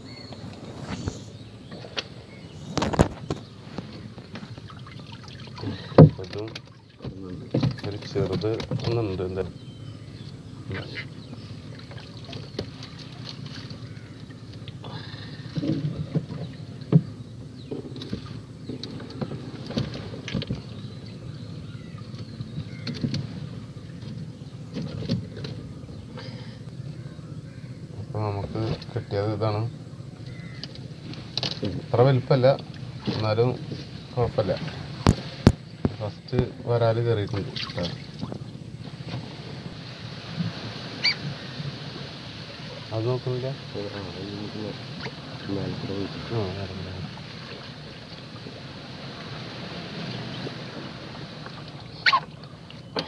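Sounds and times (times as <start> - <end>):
water splashing and running off: 3.0 - 9.0
trap knocking against boat: 34.6 - 36.5.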